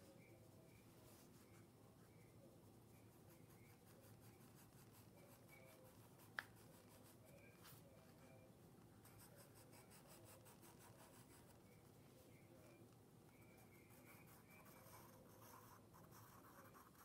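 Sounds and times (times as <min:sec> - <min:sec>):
pencil scratching on paper: 0:09.0 - 0:11.6, 0:13.4 - 0:17.0.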